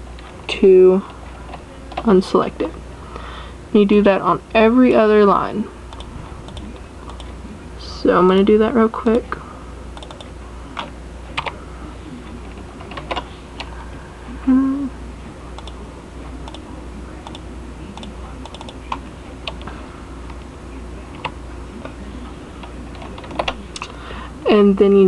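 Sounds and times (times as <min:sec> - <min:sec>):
low hum: 0:00.0 - 0:24.5
person humming: 0:14.3 - 0:15.0.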